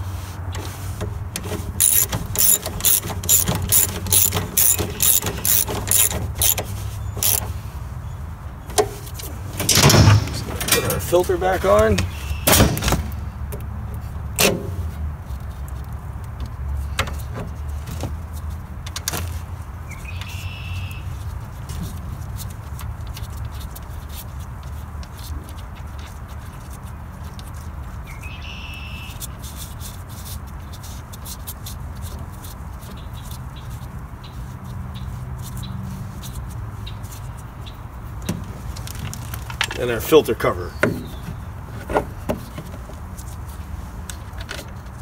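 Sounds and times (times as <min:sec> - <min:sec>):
short high squeaks: 0:01.8 - 0:07.5.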